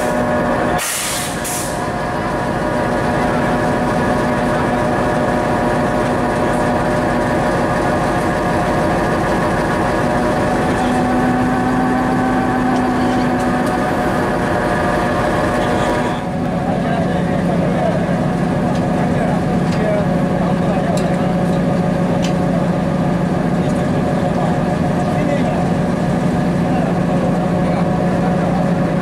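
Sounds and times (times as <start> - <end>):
diesel locomotive engine idling: 0.0 - 29.0
short hiss: 0.8 - 1.8.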